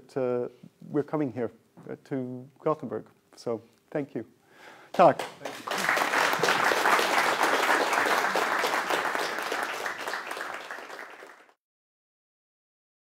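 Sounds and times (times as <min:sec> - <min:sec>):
audience applauding: 0:05.0 - 0:11.6.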